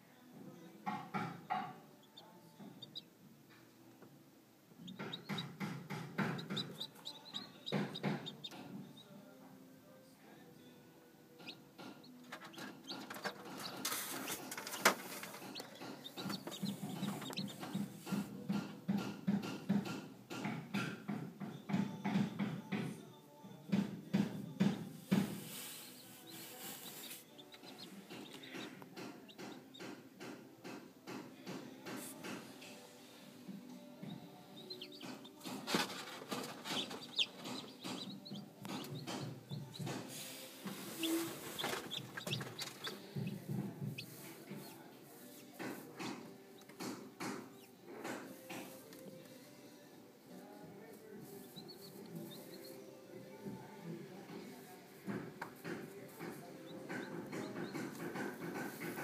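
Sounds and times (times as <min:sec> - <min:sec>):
chicks peeping: 0:01.1 - 0:03.1, 0:04.8 - 0:09.1, 0:11.4 - 0:20.4, 0:24.6 - 0:31.2, 0:34.0 - 0:47.8, 0:51.4 - 0:52.8, 0:55.5 - 0:59.0
knocks and rustles: 0:11.8 - 0:22.9, 0:34.9 - 0:44.8, 0:55.0 - 0:59.0.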